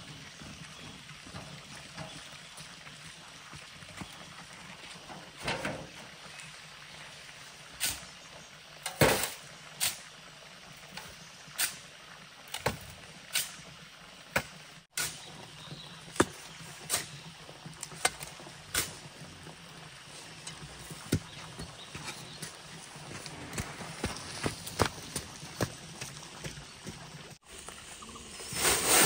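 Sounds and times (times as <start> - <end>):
sand tipping into metal wheelbarrow: 28.0 - 29.0
shovel scraping sand: 28.3 - 29.0.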